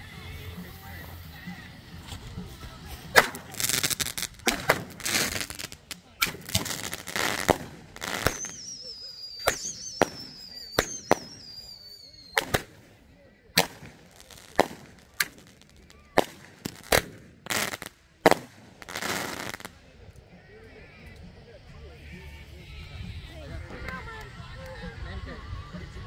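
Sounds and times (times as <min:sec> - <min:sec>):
fizzing crackle of fireworks: 0:00.0 - 0:20.3
firework bangs: 0:00.8 - 0:19.8
high descending whistle: 0:08.2 - 0:12.4.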